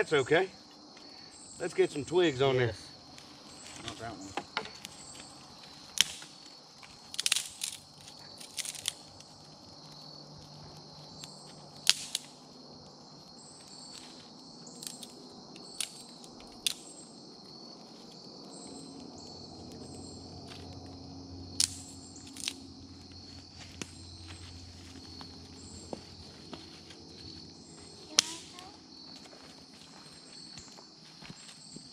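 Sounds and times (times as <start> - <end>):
insects chirping: 0.0 - 31.9
dry twigs snapping: 4.7 - 12.4, 14.7 - 17.0, 21.5 - 22.6, 28.1 - 28.5.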